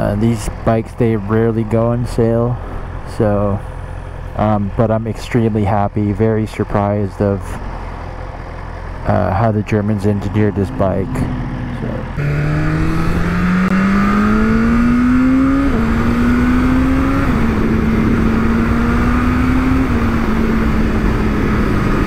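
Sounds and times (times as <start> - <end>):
motorcycle engine accelerating: 10.6 - 22.0.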